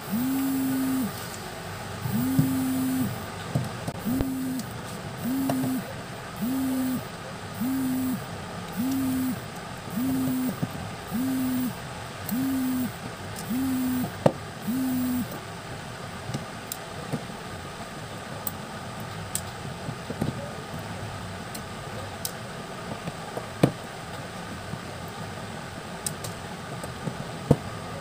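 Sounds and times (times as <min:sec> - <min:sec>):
low buzzing tone pulsing: 0:00.0 - 0:01.2, 0:02.0 - 0:03.3, 0:04.0 - 0:15.4
sharp click: 0:04.0 - 0:07.0, 0:08.7 - 0:09.3.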